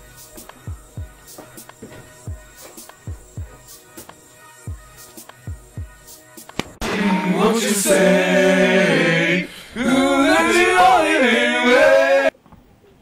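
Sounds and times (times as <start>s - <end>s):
person singing unaccompanied: 6.8s - 12.3s.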